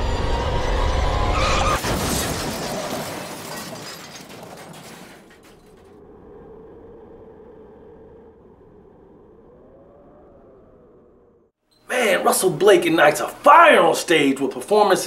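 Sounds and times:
car crash smash: 1.2s - 6.0s
glass shattering: 1.7s - 5.9s
debris rattling and tinkling: 1.9s - 6.0s.

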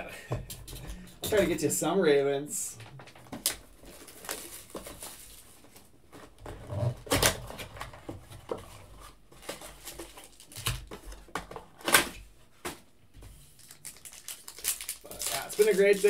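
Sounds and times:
plastic wrap crinkling: 3.4s - 5.8s, 9.4s - 10.9s, 13.5s - 16.0s.

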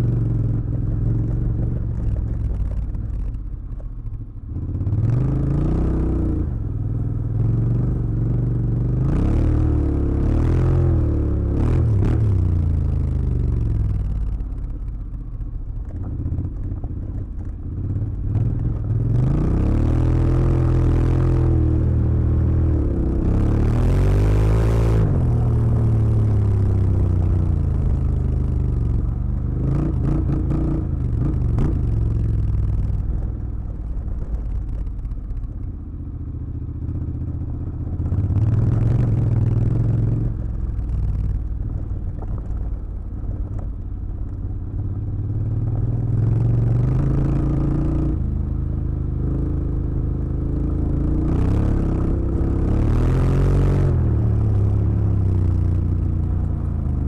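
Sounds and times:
motorcycle engine revving: 17.7s - 42.6s, 44.5s - 57.0s
stones clattering under tyres: 40.9s - 44.5s.

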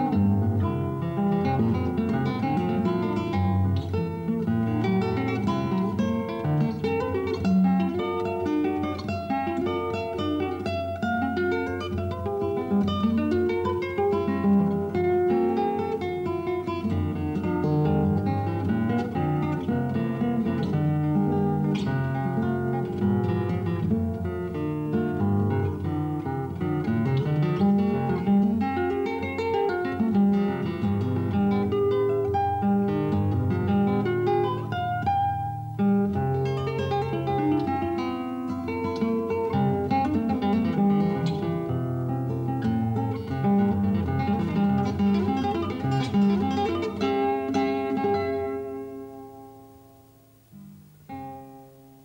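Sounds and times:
fingerstyle acoustic guitar: 0.0s - 52.0s.

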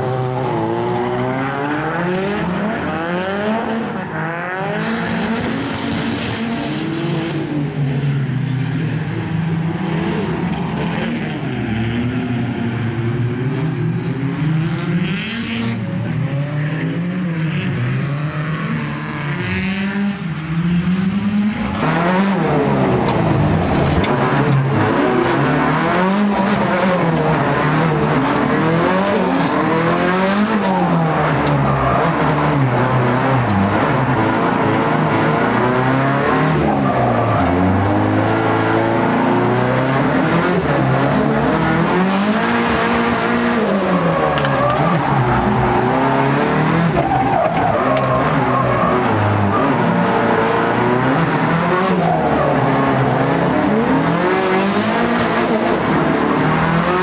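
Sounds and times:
car engines revving: 0.0s - 57.0s
tyres squealing and skidding: 21.8s - 38.6s, 40.2s - 57.0s.

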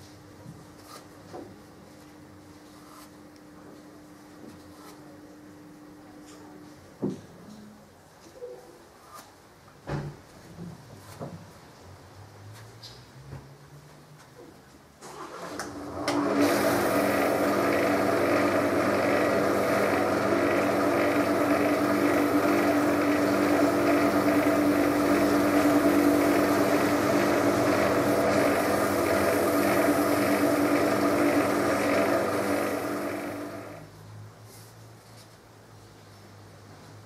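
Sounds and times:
wood lathe motor humming: 15.9s - 33.8s.

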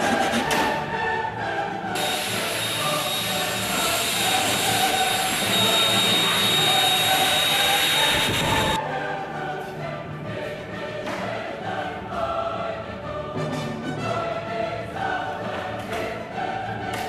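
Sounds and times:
cordless blower whining: 2.0s - 8.8s.

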